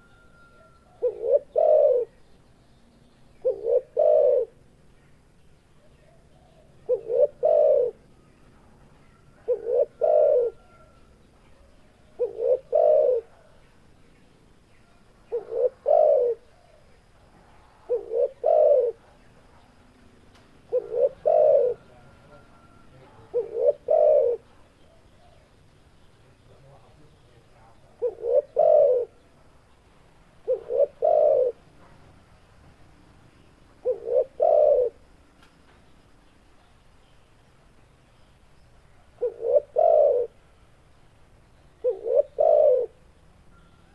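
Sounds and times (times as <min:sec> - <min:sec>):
dove cooing: 0:00.0 - 0:02.2, 0:03.4 - 0:04.6, 0:06.0 - 0:08.2, 0:09.1 - 0:11.2, 0:12.0 - 0:13.6, 0:15.2 - 0:17.1, 0:17.7 - 0:19.3, 0:20.6 - 0:25.5, 0:27.8 - 0:29.3, 0:30.4 - 0:31.7, 0:33.8 - 0:35.1, 0:39.1 - 0:40.5, 0:41.8 - 0:43.1.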